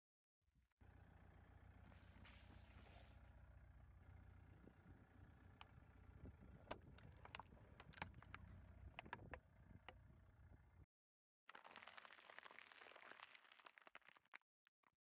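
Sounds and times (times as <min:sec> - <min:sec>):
car engine humming: 0:00.8 - 0:10.8
plastic bottles cracking: 0:11.5 - 0:14.4.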